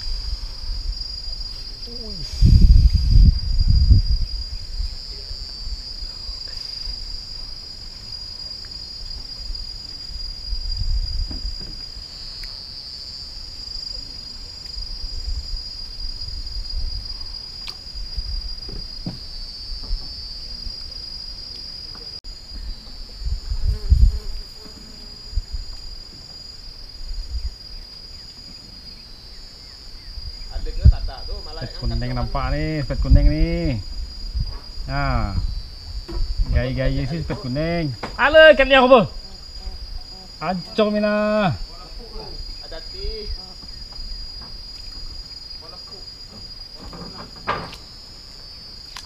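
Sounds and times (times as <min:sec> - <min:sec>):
insects chorus: 0:00.0 - 0:49.0
low thumps and rumbles: 0:32.9 - 0:38.2.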